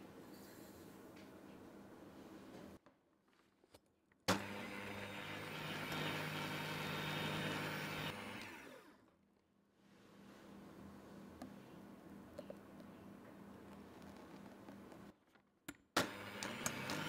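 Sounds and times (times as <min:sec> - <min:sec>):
electric hand mixer running: 0:04.3 - 0:09.0, 0:16.0 - 0:17.0.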